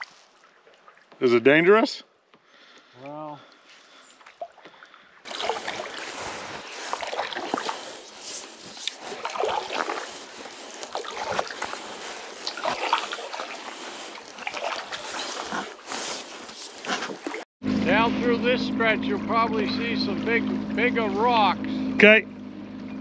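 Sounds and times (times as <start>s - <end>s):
paddle splashing in water: 0.0s - 1.2s, 3.8s - 17.5s.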